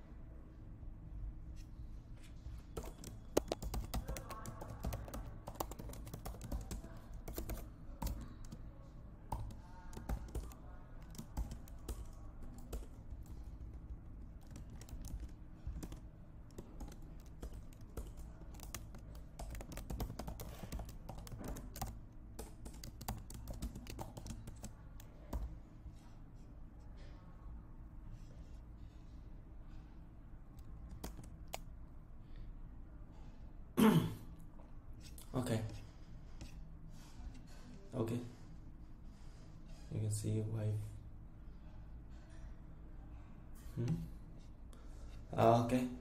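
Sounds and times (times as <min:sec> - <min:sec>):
computer keyboard typing: 0:02.8 - 0:08.6, 0:09.3 - 0:25.5, 0:30.6 - 0:31.7.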